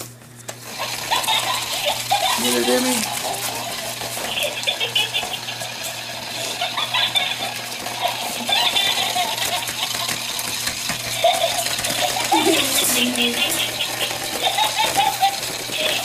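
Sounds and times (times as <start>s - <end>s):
puppies scuffling and playing: 0.0s - 16.0s.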